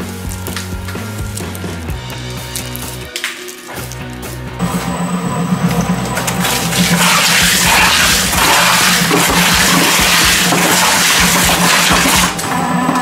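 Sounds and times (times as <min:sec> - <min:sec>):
shredder humming: 0:04.6 - 0:13.0.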